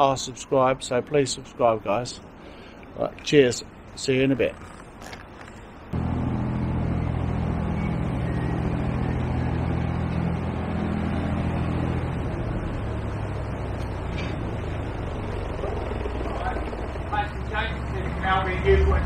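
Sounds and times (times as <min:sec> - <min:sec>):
boat diesel engine running: 0:06.0 - 0:19.0.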